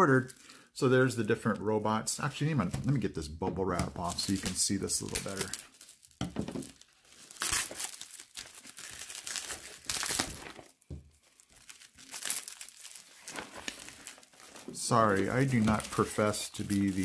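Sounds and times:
bubble wrap crinkling: 0:03.9 - 0:17.0.

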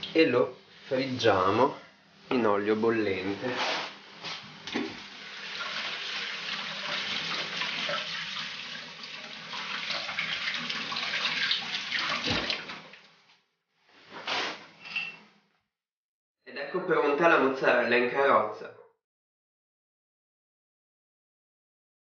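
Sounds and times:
deep-frying sizzle and crackles: 0:04.1 - 0:10.7.

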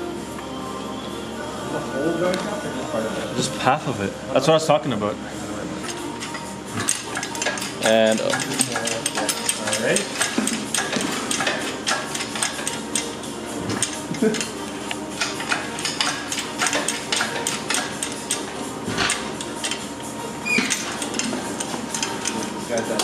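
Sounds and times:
tools clinking on metal engine: 0:05.9 - 0:13.1.

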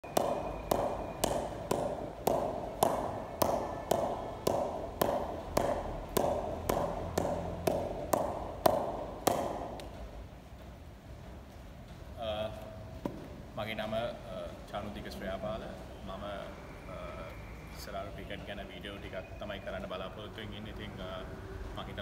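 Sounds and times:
ball bouncing on wooden bat: 0:00.0 - 0:10.2, 0:13.0 - 0:13.4.

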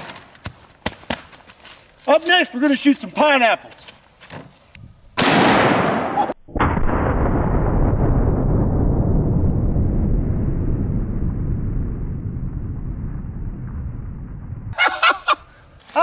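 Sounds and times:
rifle shot: 0:05.2 - 0:08.1
low slowed-down boom: 0:06.4 - 0:14.8.

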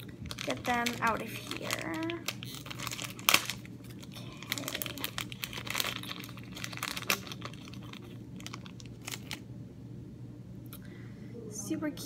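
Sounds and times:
plastic packets crinkling: 0:00.0 - 0:09.4.

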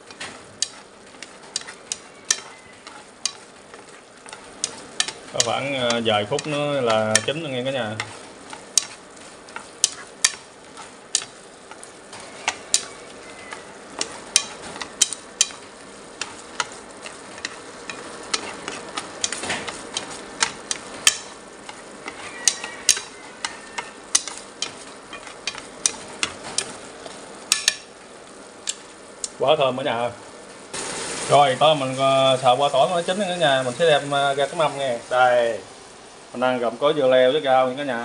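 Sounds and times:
chopsticks clicking against pan: 0:00.0 - 0:29.4
shrimp sizzling in sauce: 0:00.0 - 0:38.0.

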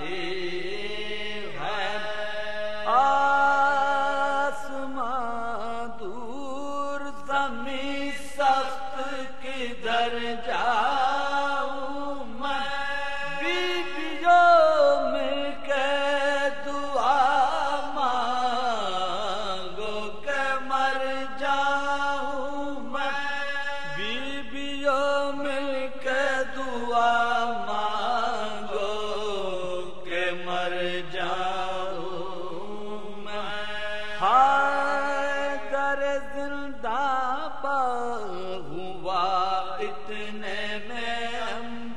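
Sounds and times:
man chanting melodically: 0:00.0 - 0:41.9.

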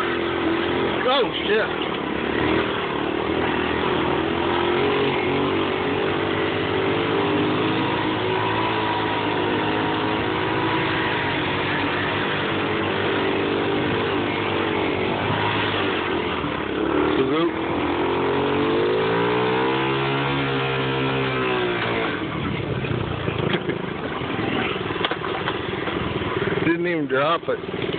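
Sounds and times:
small engine buzzing at high revs: 0:00.0 - 0:22.3.

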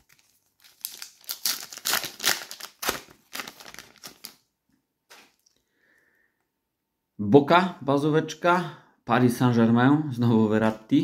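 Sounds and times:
foil packet tearing and crinkling: 0:00.0 - 0:04.4.

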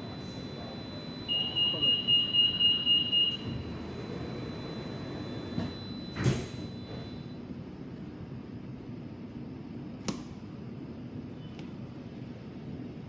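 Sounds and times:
low hum of stationary train: 0:00.0 - 0:13.0
train doors thudding shut: 0:05.2 - 0:07.1.

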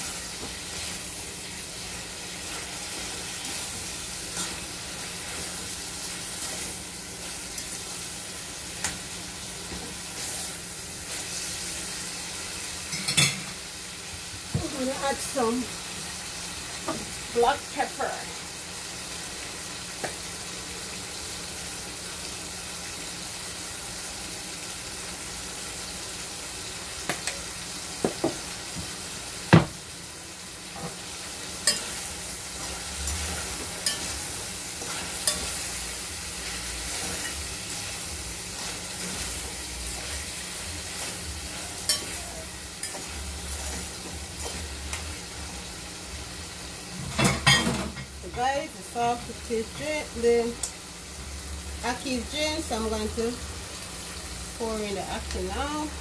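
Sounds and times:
food sizzling in a pot: 0:00.0 - 0:56.0.

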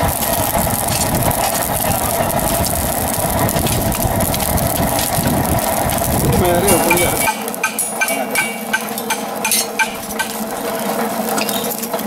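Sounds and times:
hammer tapping metal on anvil: 0:06.7 - 0:10.4.

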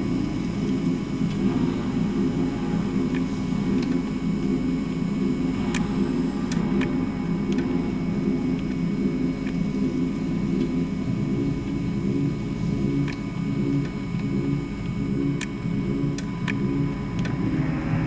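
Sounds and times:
low rumbling drone: 0:00.0 - 0:18.0
sharp crackle clicks: 0:05.6 - 0:07.8, 0:13.0 - 0:17.4.

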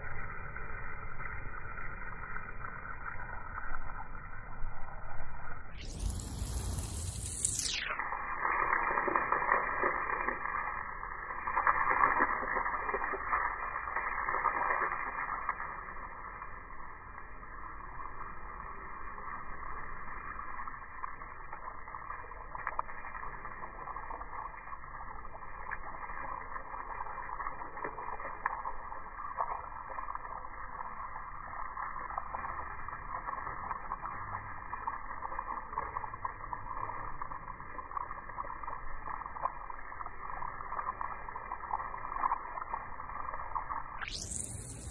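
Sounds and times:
crackles of water drops: 0:00.0 - 0:44.9
hose spray hitting wall and lawn: 0:05.8 - 0:07.8.

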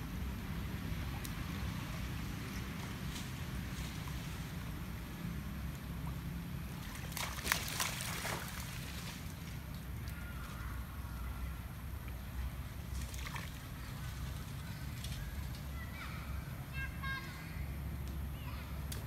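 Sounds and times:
monkeys splashing in water: 0:06.0 - 0:11.0, 0:12.8 - 0:15.9.

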